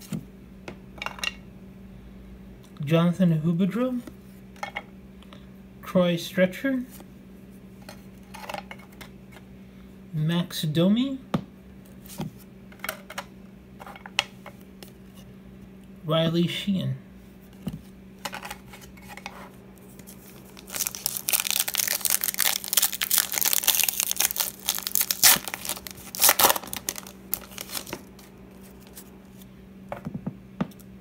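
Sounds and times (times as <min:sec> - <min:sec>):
foil wrapper crinkling and tearing: 0:19.9 - 0:29.1.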